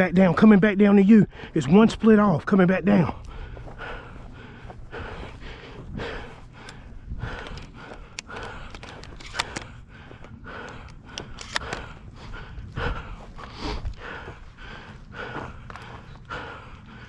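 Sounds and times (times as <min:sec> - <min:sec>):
footsteps through dry grass: 0:00.0 - 0:17.0
person breathing heavily: 0:01.1 - 0:02.1, 0:02.9 - 0:17.0
sharp clicks: 0:06.6 - 0:12.0.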